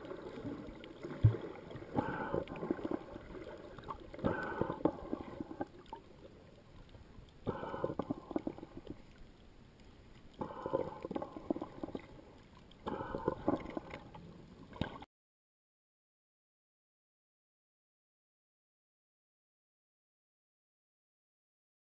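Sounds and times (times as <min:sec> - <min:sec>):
water gurgling underwater: 0:00.0 - 0:09.2, 0:10.3 - 0:15.0.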